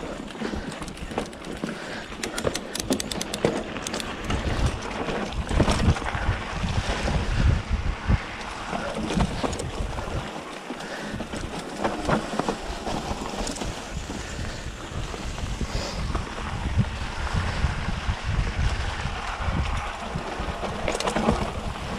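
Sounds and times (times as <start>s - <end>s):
bike knocking and rattling: 0.0s - 21.9s
wind buffeting microphone: 0.0s - 21.9s
quick clicks: 0.7s - 4.4s.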